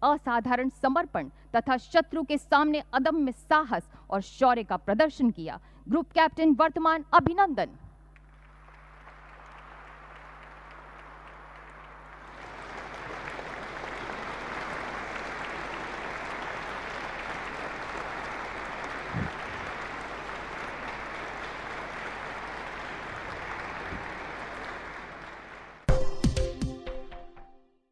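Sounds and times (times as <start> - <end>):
audience clapping: 8.2 - 26.0.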